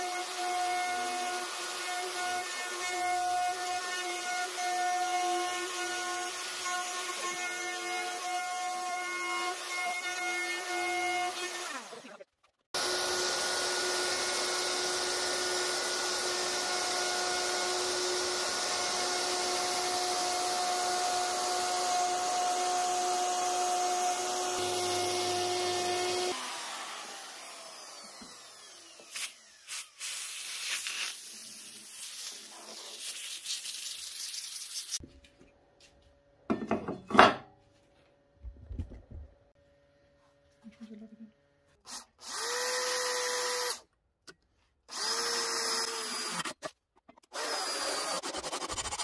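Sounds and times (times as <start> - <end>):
router cutting wood: 0.0 - 12.2, 12.8 - 30.0
router winding down: 12.8 - 29.7.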